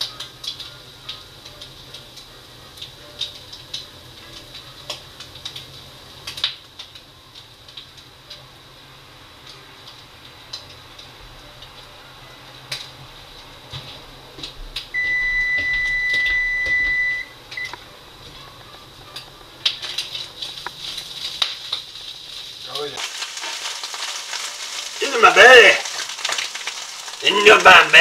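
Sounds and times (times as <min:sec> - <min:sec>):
food frying in a pan: 0:00.0 - 0:28.0
kitchen timer beeping: 0:15.0 - 0:17.8.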